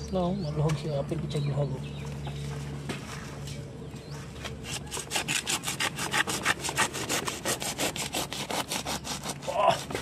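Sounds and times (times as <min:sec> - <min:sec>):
blade sawing through root ball: 0:04.6 - 0:10.0.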